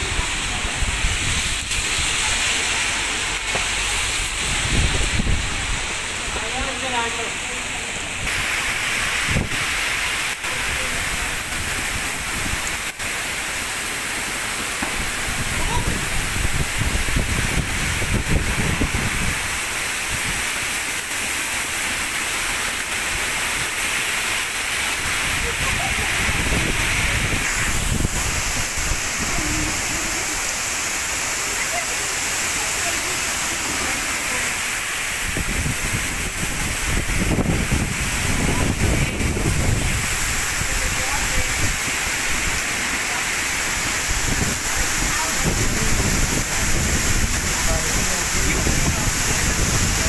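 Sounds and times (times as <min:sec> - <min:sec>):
wind gusts buffeting microphone: 0:00.0 - 0:02.5, 0:03.3 - 0:06.8, 0:08.0 - 0:09.9, 0:14.8 - 0:20.5, 0:24.9 - 0:30.6, 0:33.3 - 0:42.6, 0:43.7 - 0:50.0
heavy rain on street: 0:00.0 - 0:50.0.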